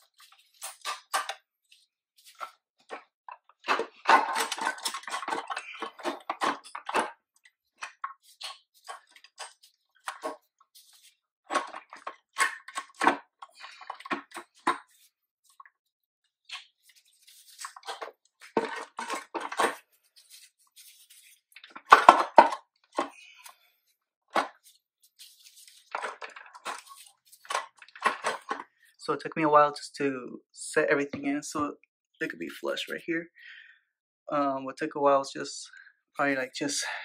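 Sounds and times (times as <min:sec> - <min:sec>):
metal parts clinking and clunking: 0:03.7 - 0:07.1.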